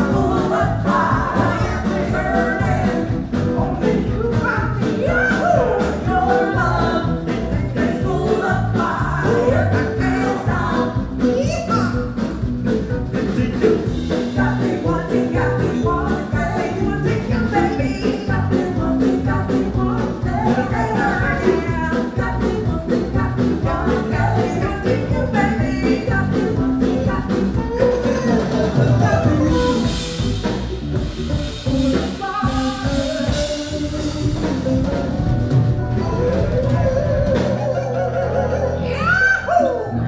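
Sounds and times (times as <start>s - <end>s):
people singing: 0.0s - 11.7s, 13.2s - 30.2s
steady driving beat: 0.0s - 37.5s
electric bass: 0.0s - 40.0s
electric guitar: 0.0s - 40.0s.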